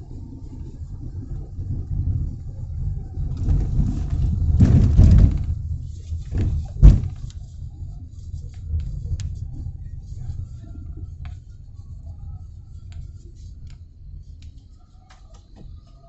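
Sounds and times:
low traffic rumble: 0:00.0 - 0:15.8
sharp thump: 0:06.4 - 0:07.3.

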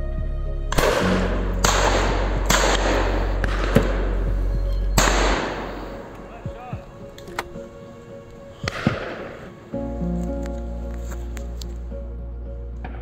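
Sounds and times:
background music: 0:00.0 - 0:13.0
shotgun shots with echo: 0:00.7 - 0:04.2, 0:05.0 - 0:06.1.

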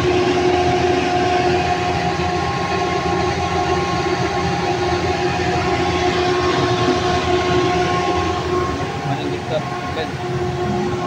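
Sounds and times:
machine droning: 0:00.0 - 0:11.0.

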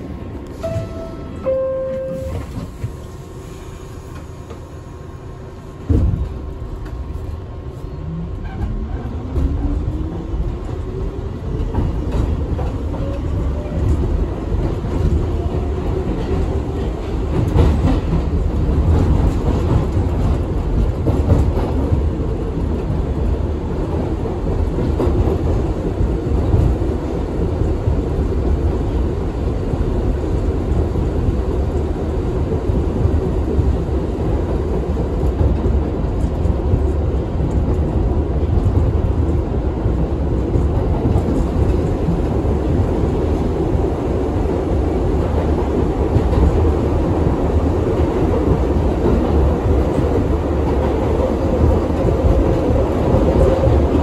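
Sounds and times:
train wheels clattering on rails: 0:08.4 - 0:28.9, 0:32.5 - 0:54.0.

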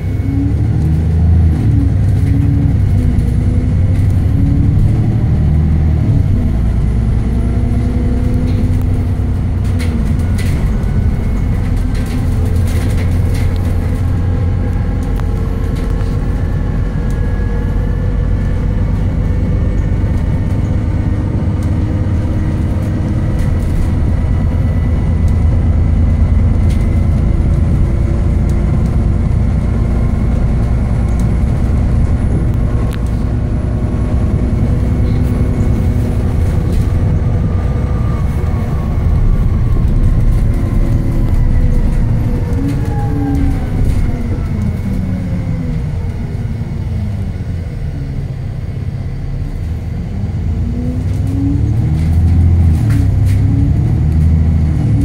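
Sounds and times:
bus diesel engine: 0:00.0 - 0:55.0.

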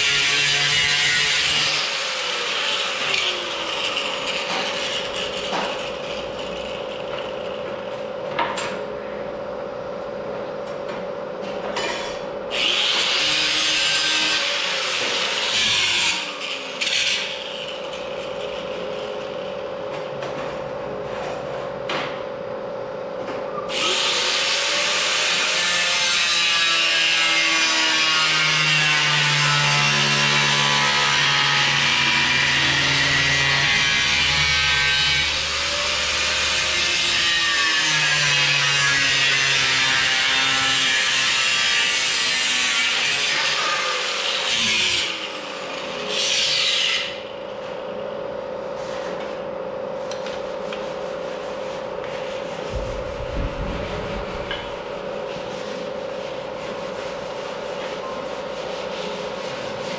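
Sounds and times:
angle grinder cutting steel: 0:00.0 - 0:07.0, 0:23.7 - 0:47.2.

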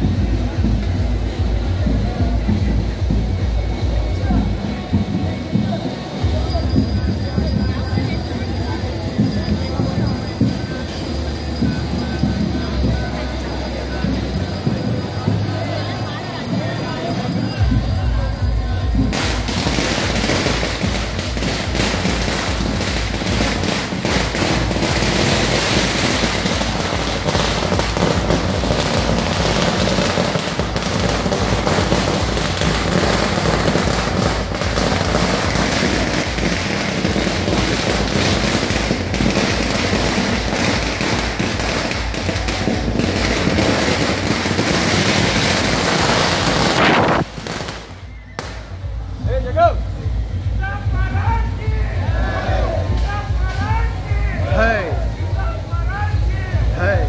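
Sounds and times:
firecrackers crackling: 0:00.0 - 0:57.0.

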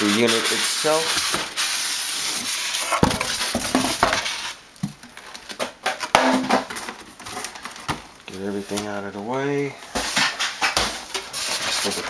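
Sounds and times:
styrofoam scraping cardboard: 0:00.0 - 0:04.6, 0:08.3 - 0:09.0, 0:09.9 - 0:12.0
plastic bag rustling: 0:00.0 - 0:12.0.

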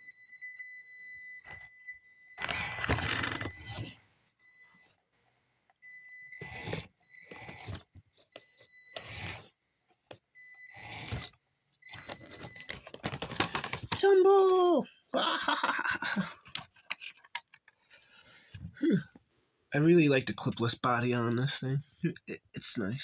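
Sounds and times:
toy car electric motor revving: 0:02.4 - 0:03.8.

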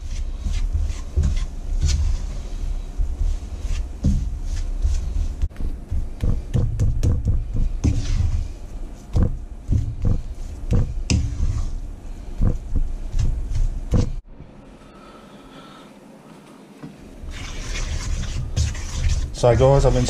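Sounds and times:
wooden spatula scraping frying pan: 0:00.0 - 0:05.5, 0:07.6 - 0:13.8, 0:17.2 - 0:20.0.

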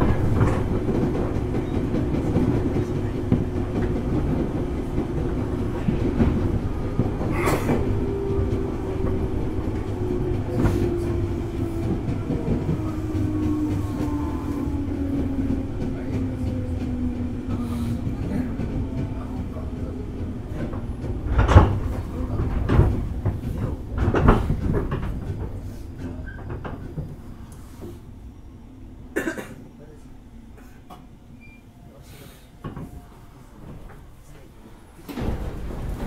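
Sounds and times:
train motor hum: 0:00.0 - 0:31.4
train wheel and track rumble: 0:00.0 - 0:36.0.

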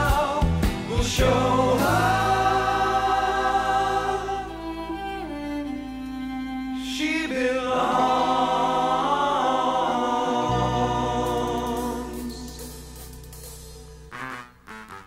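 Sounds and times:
choir singing held notes: 0:00.0 - 0:13.5
low sustained drone: 0:01.5 - 0:06.8, 0:10.4 - 0:14.1.

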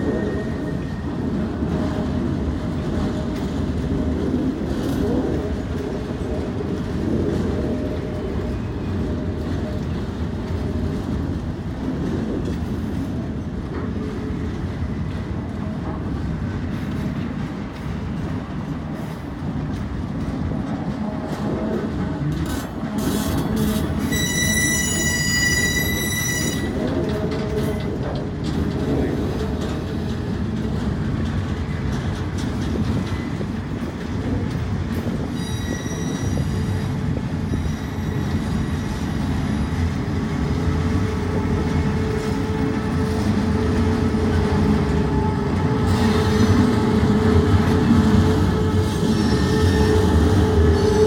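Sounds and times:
train wheels rumbling on rail: 0:00.0 - 0:51.0
low steady wheel squeal: 0:23.2 - 0:26.8, 0:35.3 - 0:39.7, 0:48.4 - 0:51.0
high-pitched wheel squeal: 0:24.0 - 0:26.7, 0:35.4 - 0:36.9, 0:48.9 - 0:51.0.

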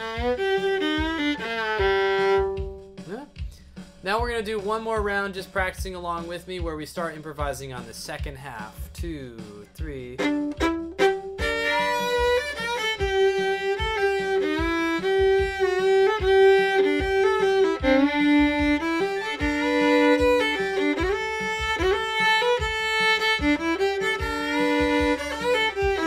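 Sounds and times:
fiddle playing bluegrass melody: 0:00.0 - 0:02.9, 0:10.0 - 0:26.0
steady drum beat: 0:00.0 - 0:26.0.

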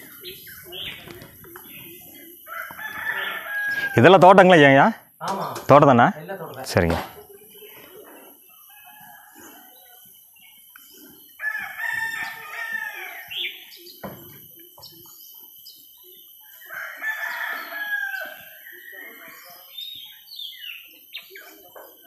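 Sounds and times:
small birds chirping: 0:00.0 - 0:22.0
rooster crowing: 0:02.4 - 0:04.2, 0:08.6 - 0:10.0, 0:11.4 - 0:13.6, 0:16.6 - 0:19.4.

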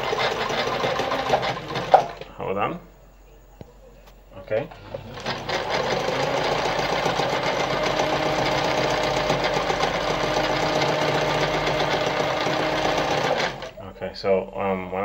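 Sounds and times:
sewing machine needle clatter: 0:00.0 - 0:02.2
sewing machine motor hum: 0:00.0 - 0:02.3, 0:04.6 - 0:13.8.

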